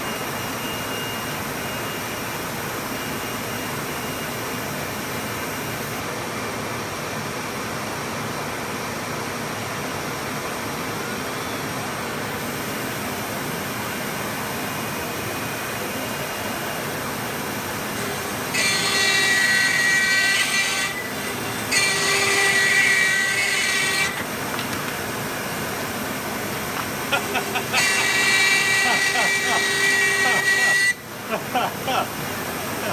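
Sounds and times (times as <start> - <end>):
router spindle cutting plywood: 17.9 - 24.3, 27.5 - 31.0.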